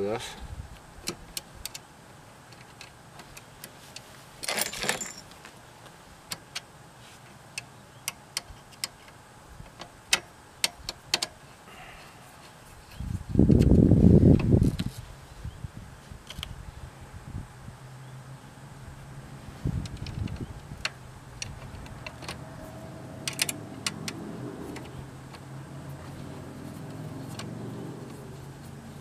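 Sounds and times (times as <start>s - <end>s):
short rattle: 4.4s - 5.4s
metal bolts clicking and tapping: 7.6s - 11.4s, 19.8s - 22.5s, 23.2s - 26.2s.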